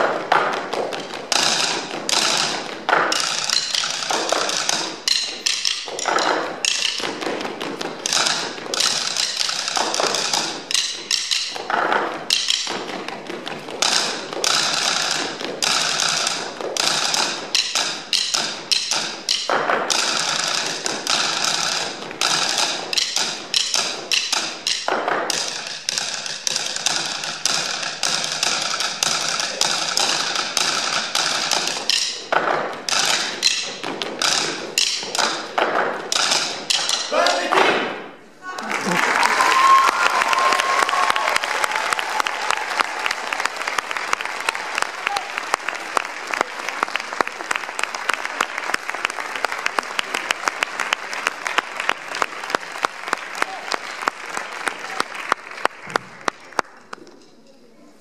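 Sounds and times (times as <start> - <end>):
sticks tapping wooden tabletops: 0.0 - 37.8.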